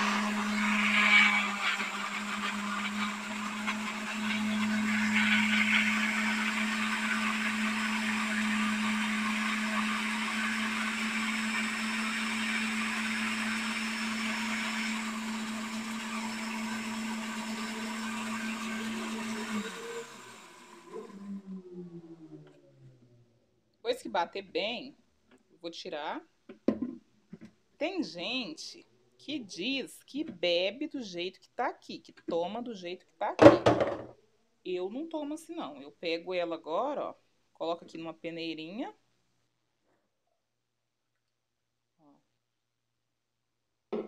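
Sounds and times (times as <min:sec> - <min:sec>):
blender motor running: 0:00.0 - 0:21.9.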